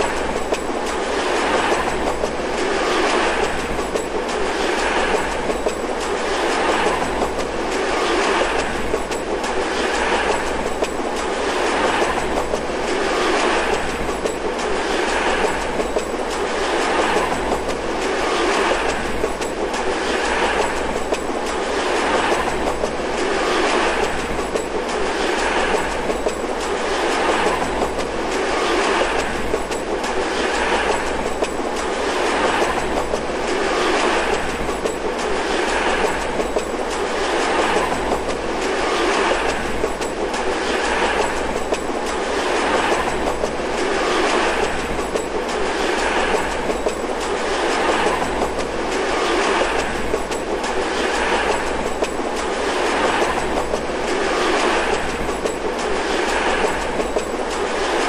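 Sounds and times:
steady whirring rush: 0:00.0 - 0:58.0
train wheels clanking over rail joints: 0:00.0 - 0:58.0.

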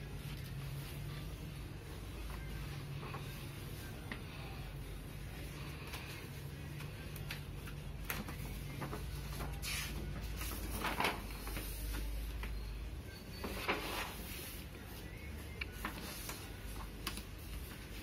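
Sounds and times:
paper swishing: 0:08.9 - 0:11.9.

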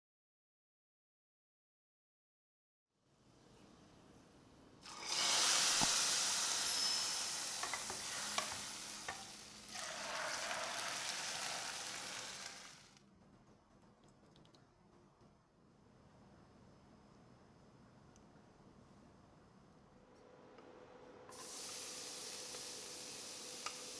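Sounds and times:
hot oil sizzling in pot: 0:04.8 - 0:13.0, 0:21.3 - 0:23.9.

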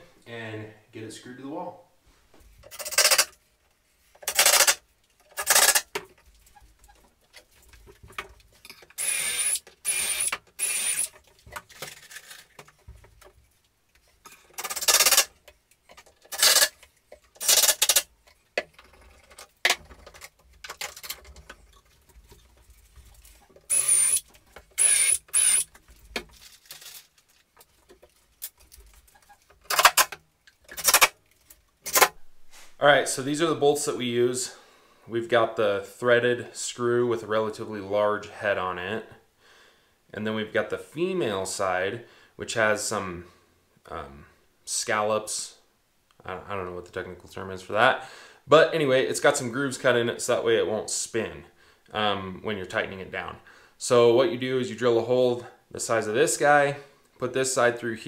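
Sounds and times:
handling knocks and clatter: 0:05.1 - 0:08.9, 0:11.1 - 0:24.8, 0:25.7 - 0:32.0
cordless drill whining in bursts: 0:09.0 - 0:11.1, 0:23.7 - 0:24.2, 0:24.8 - 0:25.7.

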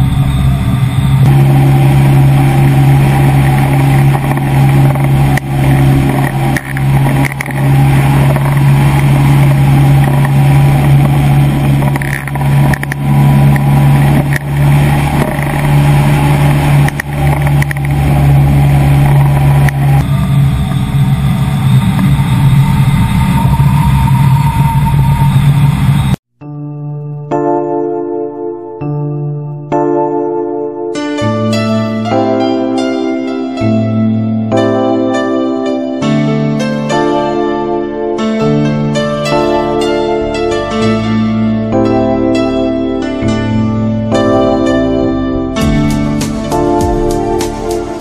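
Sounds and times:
aircraft engine and propeller drone: 0:00.0 - 0:26.2.

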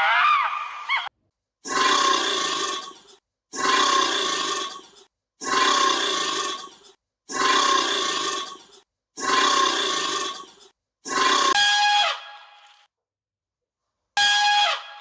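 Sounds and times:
alligator roar: 0:01.7 - 0:11.6.

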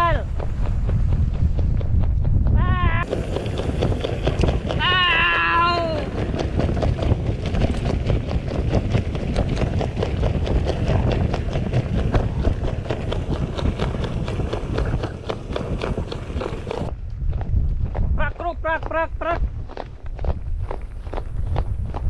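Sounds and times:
bike rattling over bumps: 0:00.0 - 0:18.1
wind rumble on microphone: 0:00.0 - 0:22.0
tyres rolling on dirt: 0:03.0 - 0:16.9.

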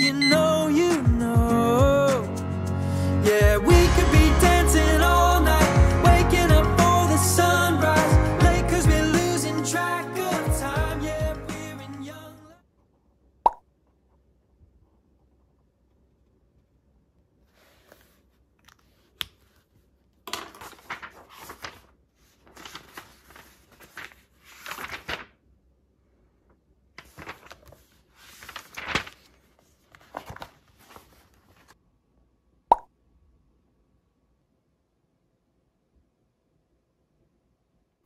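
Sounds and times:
crinkling and crunching: 0:20.3 - 0:25.3, 0:27.0 - 0:31.8.

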